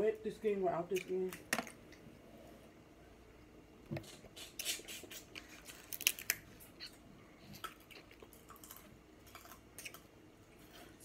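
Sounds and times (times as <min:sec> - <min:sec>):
crab shells cracking: 0:05.8 - 0:06.4.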